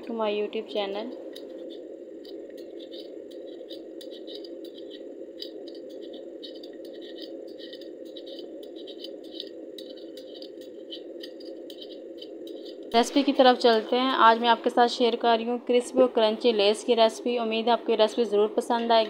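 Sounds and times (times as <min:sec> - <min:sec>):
steady low hum: 0:00.0 - 0:19.0
peeler scraping potato skin: 0:01.4 - 0:14.1.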